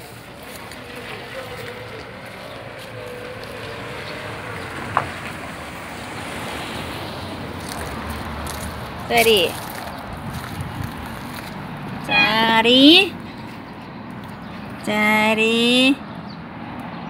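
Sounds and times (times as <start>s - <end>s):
wind on microphone: 10.1s - 11.3s.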